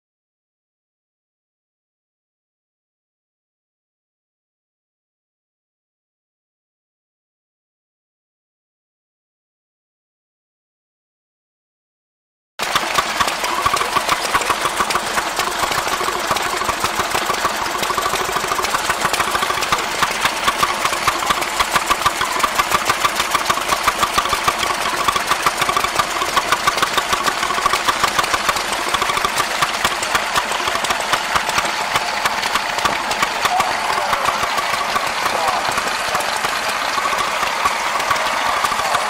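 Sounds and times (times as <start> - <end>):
stationary engines running: 12.6 - 39.0.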